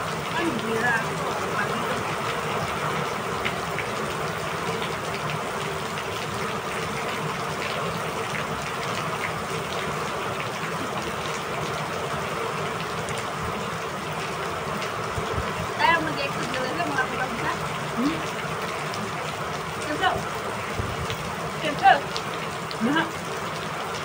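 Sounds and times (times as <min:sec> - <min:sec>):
steady rain falling: 0:00.0 - 0:24.0.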